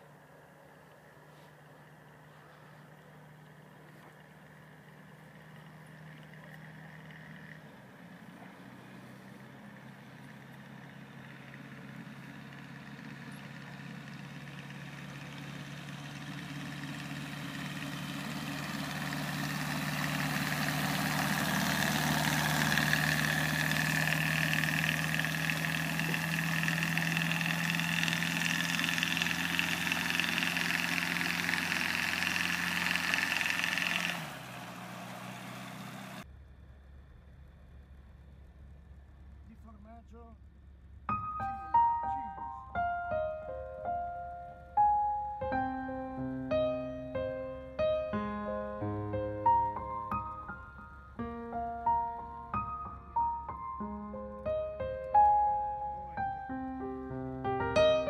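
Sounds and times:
aircraft engine and propeller: 0:00.0 - 0:48.6
high engine whine: 0:00.0 - 0:58.0.

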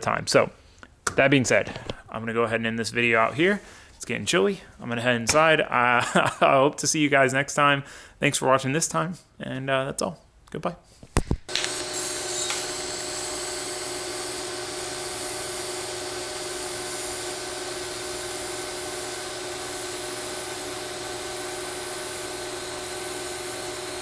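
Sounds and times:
welding arc hiss and buzz: 0:11.4 - 0:24.0.

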